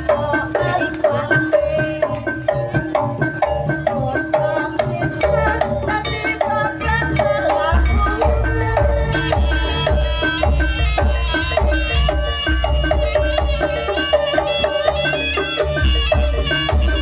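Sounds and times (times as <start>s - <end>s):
drum strokes steady beat: 0.0s - 17.0s
deep heavy beat: 5.2s - 14.9s
repeating pitched melody: 6.9s - 11.8s.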